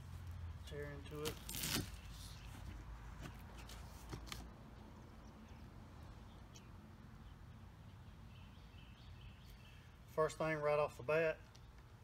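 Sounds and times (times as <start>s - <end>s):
soft bird chirps: 5.0s - 10.0s.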